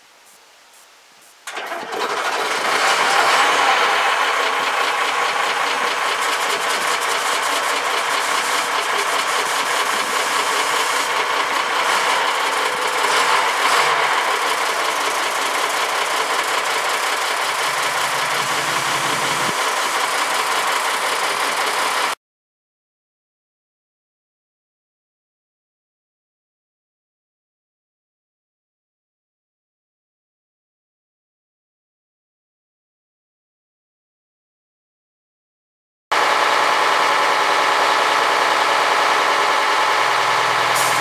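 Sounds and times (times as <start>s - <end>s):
diesel engine clattering: 1.5s - 22.2s, 36.2s - 41.0s
diesel truck engine starting: 1.5s - 22.2s, 36.1s - 41.0s.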